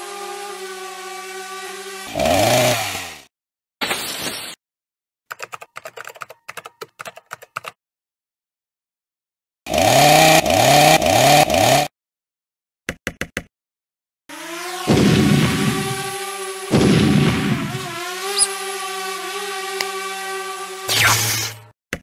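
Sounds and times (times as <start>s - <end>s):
cartoon power saw revs: 0.0s - 3.3s, 9.7s - 11.9s, 14.3s - 21.7s.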